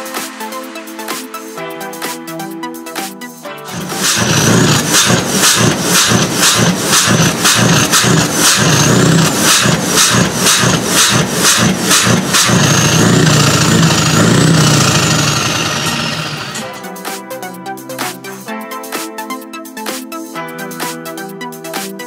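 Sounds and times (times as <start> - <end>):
truck engine revving: 3.7 - 16.8.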